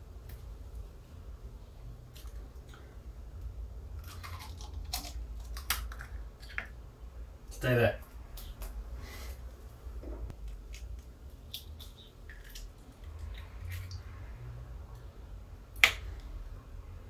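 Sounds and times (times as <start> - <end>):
low steady hum: 0.0 - 17.0
egg squishing and clicking: 3.9 - 6.8, 10.3 - 14.0, 15.7 - 16.3.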